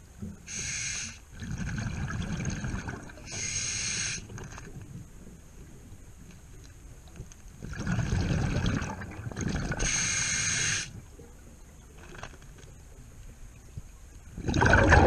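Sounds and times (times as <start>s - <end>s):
hissing inhale through regulator: 0.5s - 1.3s, 3.3s - 4.4s, 9.8s - 11.0s
exhaled bubbles rumbling underwater: 1.3s - 3.5s, 7.6s - 10.0s, 14.3s - 15.0s.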